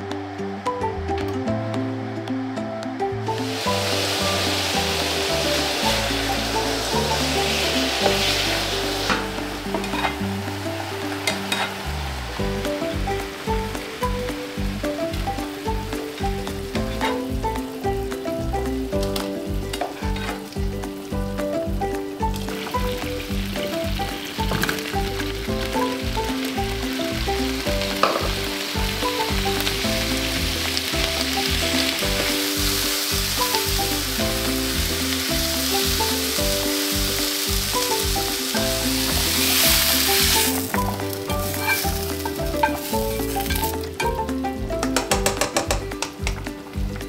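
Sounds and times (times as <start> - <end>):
background music with bass: 0.0 - 47.0
onions sizzling in butter: 3.3 - 46.9
spatula stirring in pan: 39.0 - 43.8.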